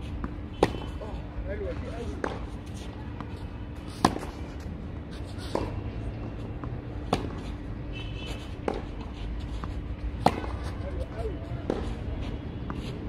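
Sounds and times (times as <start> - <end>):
racket hitting tennis ball: 0.2 - 1.0, 2.1 - 2.6, 3.8 - 4.6, 5.3 - 5.8, 6.5 - 7.6, 8.4 - 8.9, 9.6 - 10.8, 11.6 - 12.0
tennis ball bounces: 0.2 - 1.0, 1.6 - 2.6, 3.2 - 4.6, 5.4 - 7.6, 8.4 - 8.9, 9.6 - 12.0.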